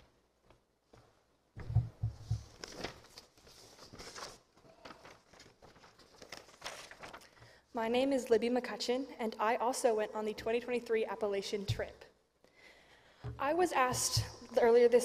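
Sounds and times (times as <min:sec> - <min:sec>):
low thumps: 0:01.6 - 0:02.5, 0:13.2 - 0:14.6
paper rustling and crinkling: 0:02.2 - 0:07.4.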